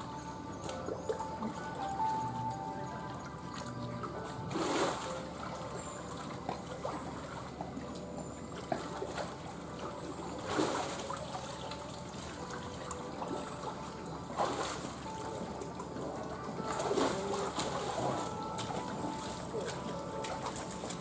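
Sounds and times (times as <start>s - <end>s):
water trickling and sloshing: 0.0s - 21.0s
animal splashing in water: 3.5s - 7.7s, 8.6s - 15.4s, 16.0s - 21.0s.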